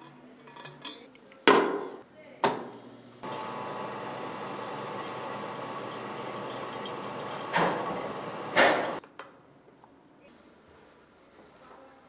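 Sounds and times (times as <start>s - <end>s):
water stream filling bottle: 3.2s - 9.0s.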